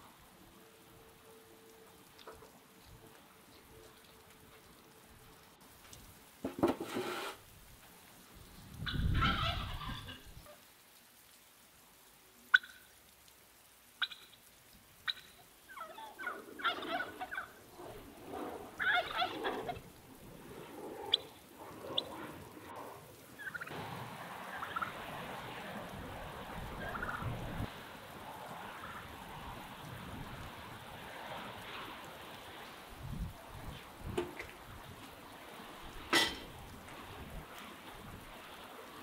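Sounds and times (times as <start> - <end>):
rain hissing: 0.0 - 39.0
turkey gobbling: 8.8 - 10.6, 12.5 - 12.9, 14.0 - 14.4, 15.0 - 17.6, 18.8 - 19.8, 21.9 - 22.1, 23.4 - 23.7, 24.5 - 25.0, 26.8 - 27.2.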